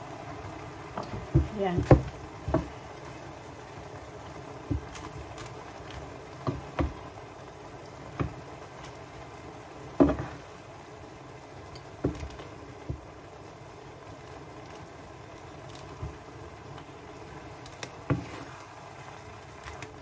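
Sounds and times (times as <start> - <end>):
noodles sizzling in a frying pan: 0.0 - 20.0
wooden spatula knocking a pan: 1.0 - 2.8, 4.6 - 5.0, 6.4 - 7.1, 8.0 - 8.5, 9.9 - 10.4, 12.0 - 13.1, 17.9 - 18.5.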